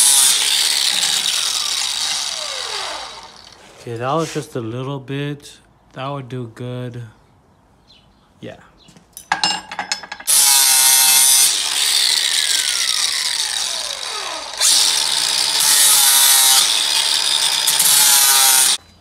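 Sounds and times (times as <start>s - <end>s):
angle grinder grinding steel: 0.0s - 3.7s, 10.2s - 18.8s.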